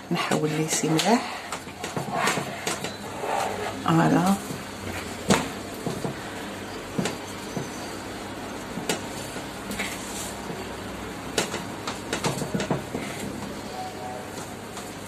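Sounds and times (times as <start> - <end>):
low background hum: 0.0 - 15.0
scraper smoothing cream: 0.2 - 4.1.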